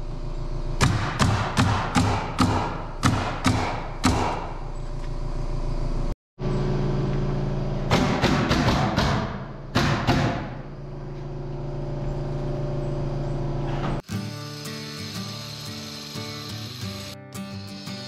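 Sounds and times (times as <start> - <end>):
nail gun firing into plywood: 7.9 - 10.6.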